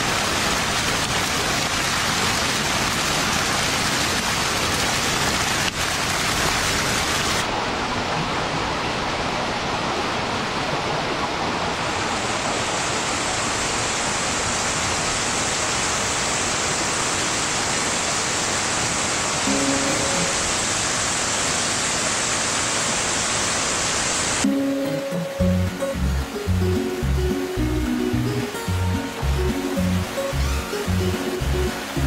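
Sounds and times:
water pouring and splashing: 0:00.0 - 0:07.6, 0:27.6 - 0:32.0.

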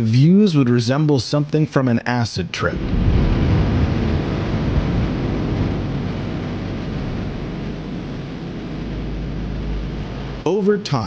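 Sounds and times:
deep rumble: 0:02.5 - 0:11.0.

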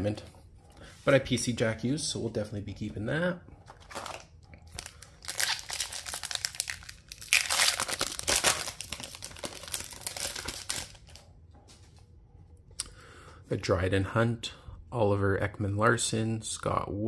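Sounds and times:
wrapper tearing and crinkling: 0:03.8 - 0:11.2.

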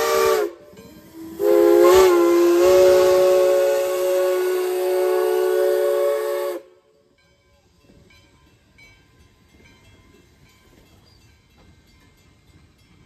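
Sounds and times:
steam whistle chord: 0:00.0 - 0:07.0.

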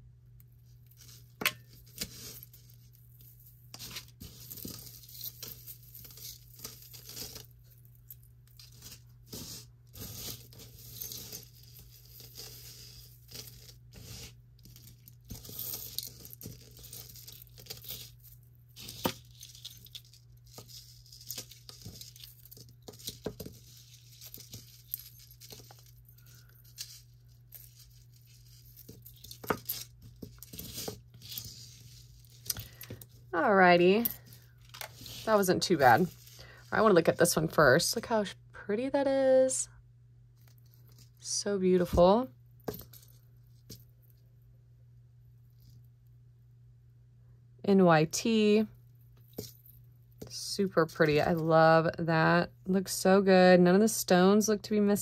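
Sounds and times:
metal jewelry clinking and rattling: 0:14.6 - 0:33.1.

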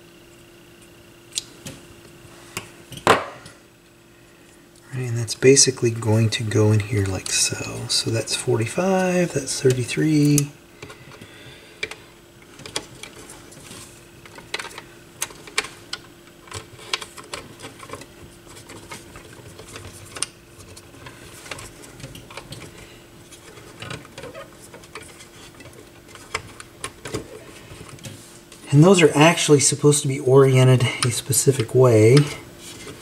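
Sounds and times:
faint steady hum: 0:00.0 - 0:33.0
hands clicking plastic parts: 0:11.8 - 0:13.2, 0:14.2 - 0:22.7.

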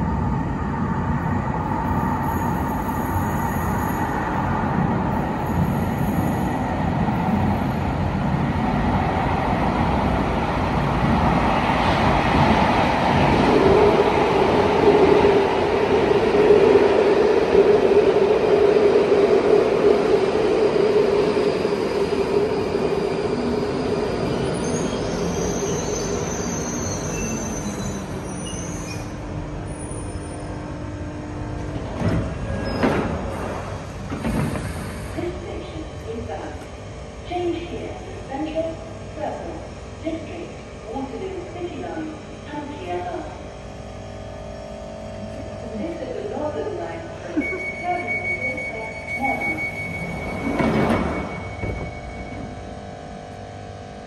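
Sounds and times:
train rumbling: 0:00.0 - 0:54.0
train steady whine: 0:00.0 - 0:54.0
train brakes squealing: 0:22.6 - 0:30.6, 0:47.4 - 0:52.5.

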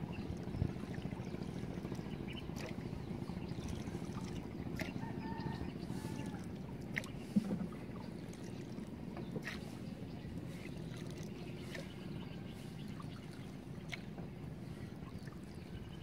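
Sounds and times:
boat engine rumble: 0:00.0 - 0:16.0
faint bird calls: 0:03.5 - 0:08.2.

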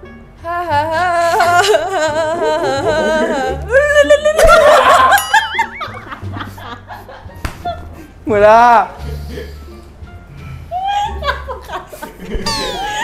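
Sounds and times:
backing music: 0:00.0 - 0:13.0
people laughing: 0:01.2 - 0:08.1, 0:10.8 - 0:13.0.

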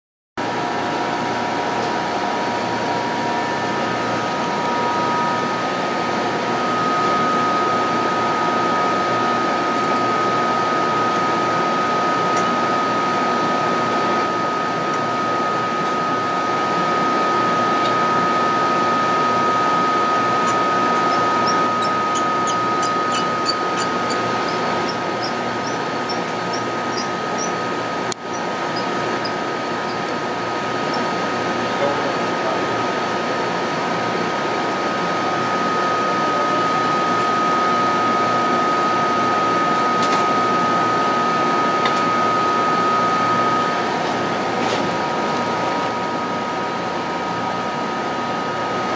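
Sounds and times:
vacuum equipment and fans humming: 0:00.4 - 0:48.9
short high squeaks: 0:20.4 - 0:27.6, 0:28.3 - 0:30.0.

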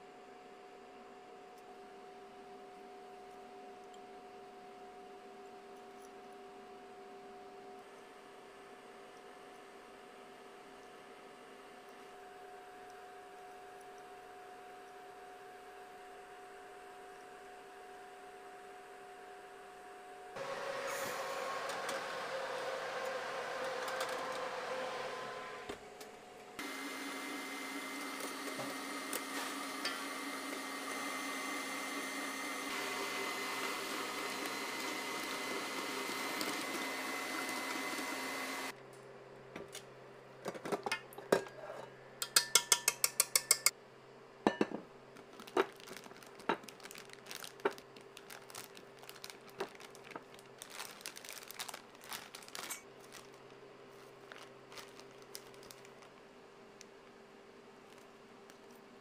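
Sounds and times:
stand mixer whipping: 0:20.4 - 0:25.7, 0:26.6 - 0:38.7
wire whisk tapping metal bowl: 0:42.2 - 0:43.7.

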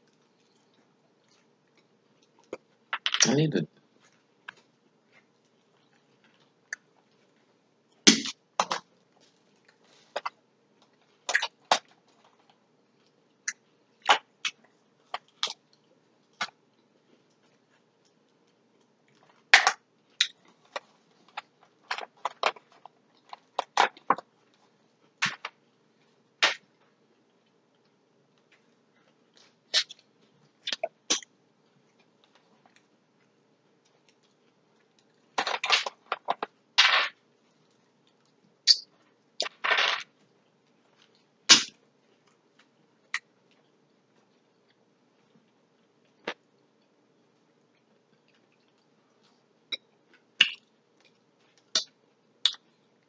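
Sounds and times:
chewing and smacking: 0:42.1 - 0:53.0.

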